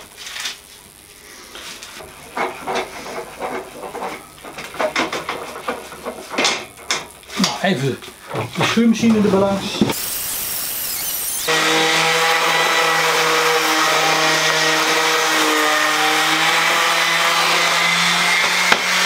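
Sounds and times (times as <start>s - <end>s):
power sander on wood: 9.0s - 19.0s.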